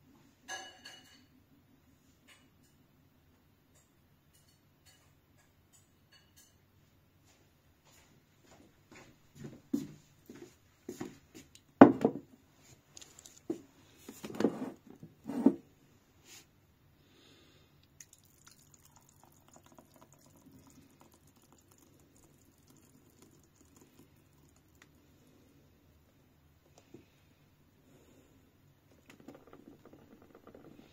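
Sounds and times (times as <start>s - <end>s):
metal jug knocking and clunking: 11.8s - 12.3s, 29.0s - 30.8s
juice trickling onto a plate: 12.7s - 14.0s, 17.8s - 25.3s.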